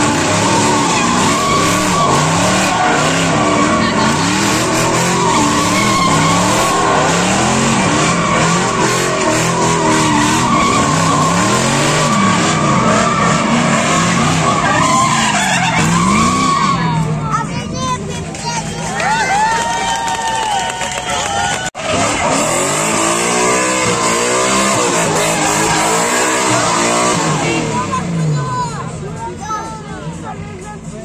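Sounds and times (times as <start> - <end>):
tyres squealing: 0.0 - 17.1
car engines revving: 0.0 - 31.0.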